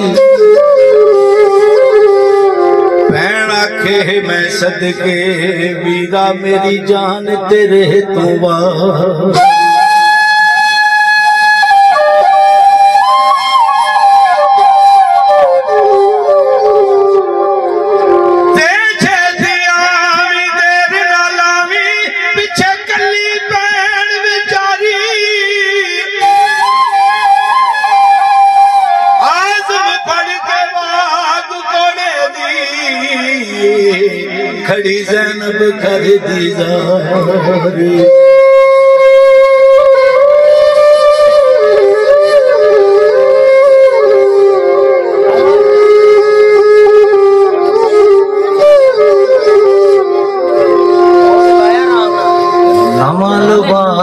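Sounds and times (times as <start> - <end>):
instrumental melody: 0.0 - 54.0
man singing through microphone: 3.1 - 9.7, 29.6 - 38.4, 52.7 - 54.0.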